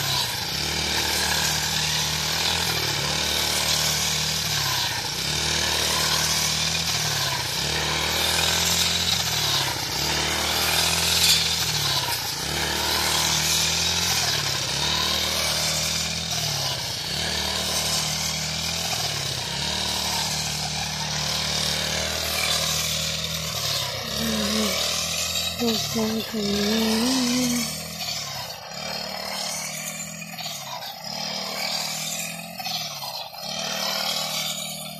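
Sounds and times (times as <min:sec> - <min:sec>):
brush cutter engine running: 0:00.0 - 0:34.9.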